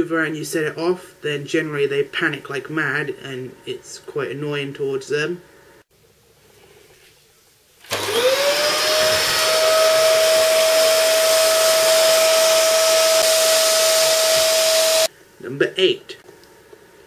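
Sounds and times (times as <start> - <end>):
vacuum cleaner motor whining: 7.8 - 15.1.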